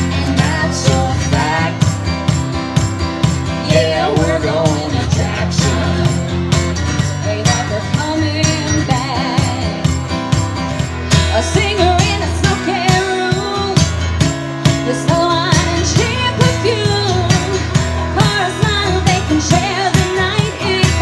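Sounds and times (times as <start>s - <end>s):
strummed acoustic guitar: 0.0s - 21.0s
woman singing: 0.2s - 2.0s, 3.6s - 6.2s, 7.0s - 10.0s, 11.2s - 13.9s, 14.8s - 21.0s.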